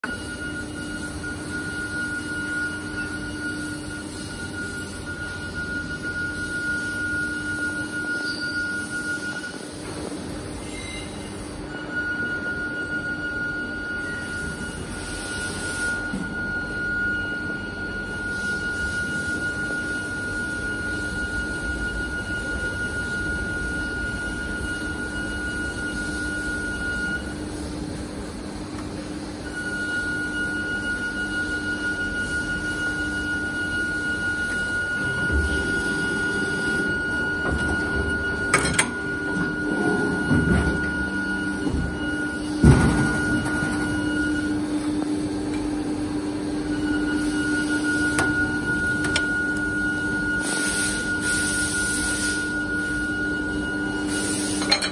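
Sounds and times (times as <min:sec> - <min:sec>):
thin high machine whine: 0:00.0 - 0:54.9
machine low hum: 0:16.0 - 0:54.9.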